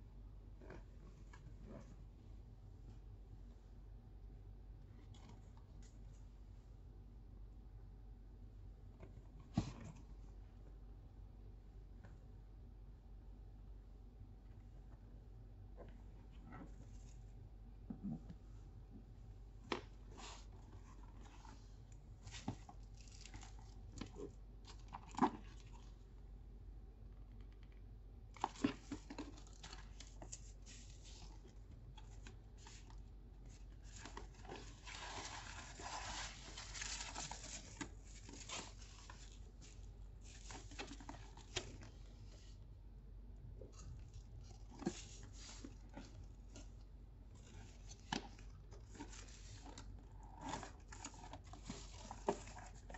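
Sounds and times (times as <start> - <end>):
tissue paper rustling: 29.4 - 31.6, 32.2 - 42.6.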